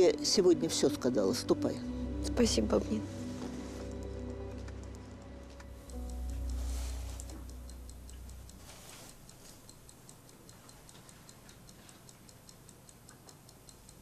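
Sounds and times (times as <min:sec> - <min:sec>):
background music: 0:00.0 - 0:09.3
clock ticking: 0:03.4 - 0:14.0.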